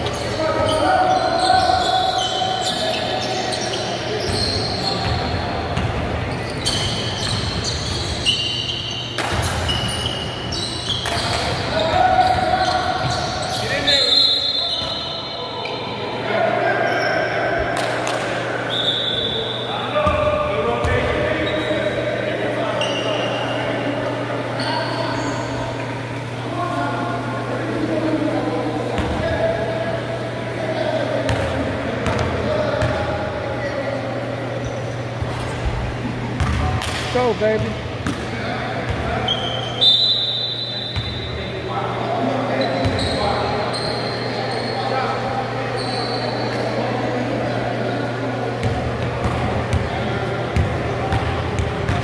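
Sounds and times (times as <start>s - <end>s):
murmur of spectators: 0.0s - 52.0s
basketball bouncing on court: 5.0s - 8.2s, 20.0s - 21.1s, 31.3s - 33.0s, 36.4s - 38.3s, 48.6s - 50.0s, 50.6s - 52.0s.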